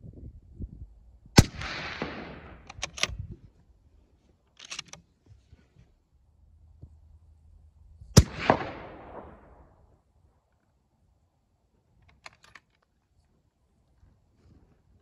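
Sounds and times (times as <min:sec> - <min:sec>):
rifle shot with echoing tail: 0:01.4 - 0:02.8, 0:08.2 - 0:09.9.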